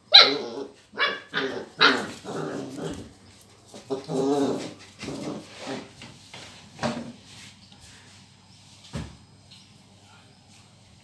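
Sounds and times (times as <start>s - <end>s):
puppy barking: 0.1s - 2.3s.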